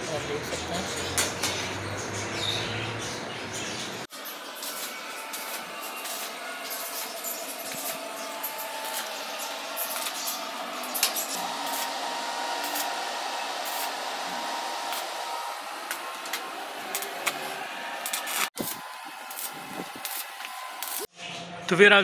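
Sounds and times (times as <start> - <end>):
arc welding crackling hiss: 4.1 - 21.1.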